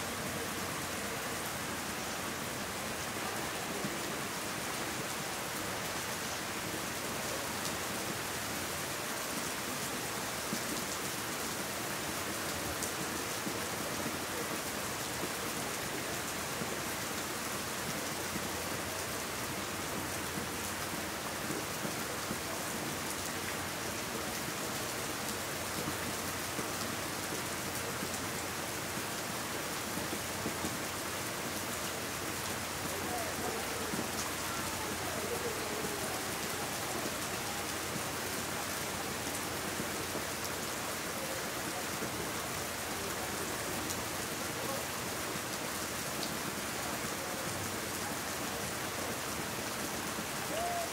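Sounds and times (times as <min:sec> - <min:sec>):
rain falling on leaves: 0:00.0 - 0:50.9.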